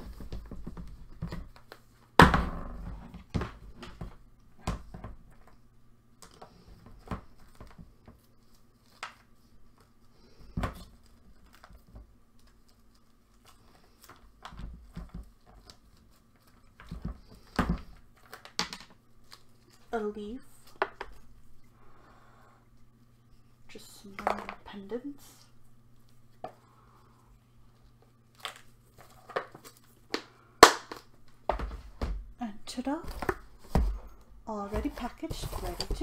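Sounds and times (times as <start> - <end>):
low steady hum: 0.0 - 36.0
plastic container rummaging: 32.8 - 36.0.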